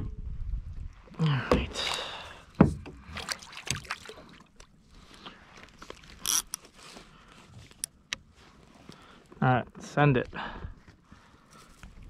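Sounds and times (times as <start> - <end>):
fishing reel clicks and scrapes: 6.2 - 6.6.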